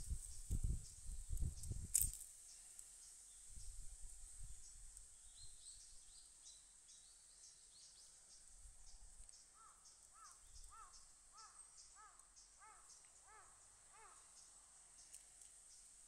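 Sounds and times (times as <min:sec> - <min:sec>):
crow cawing: 0:09.6 - 0:14.3.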